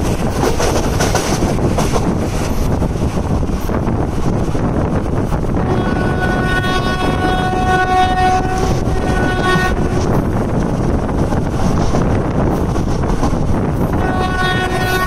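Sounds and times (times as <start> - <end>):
train wheels rumbling: 0.0 - 15.0
train horn chord: 5.6 - 10.1, 14.0 - 15.0.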